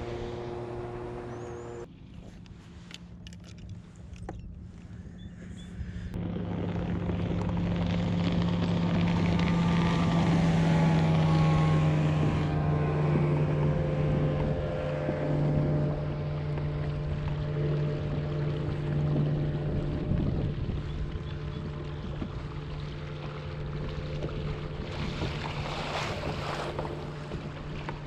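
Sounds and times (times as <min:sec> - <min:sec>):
motorboat engine drone: 0:00.0 - 0:28.0.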